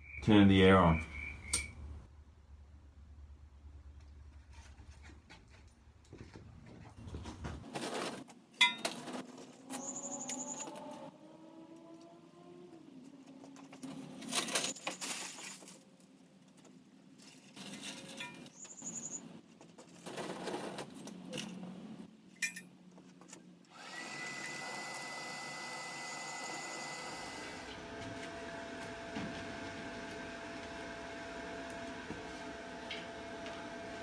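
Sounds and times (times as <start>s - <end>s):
fuel clattering and scraping in forge: 6.2s - 10.4s, 17.2s - 18.7s, 19.6s - 21.6s
electric air blower running: 23.7s - 34.0s.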